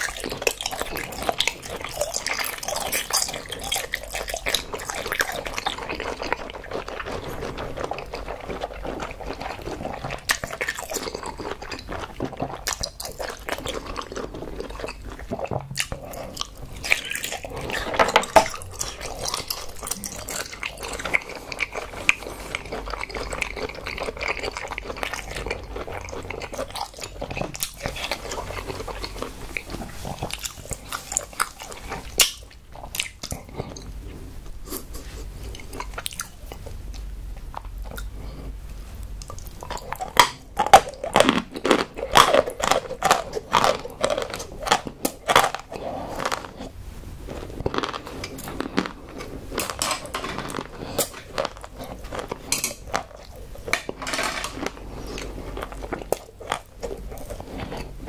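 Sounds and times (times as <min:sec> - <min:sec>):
person chewing food: 0:00.0 - 0:58.0
crisp crunches: 0:39.3 - 0:58.0.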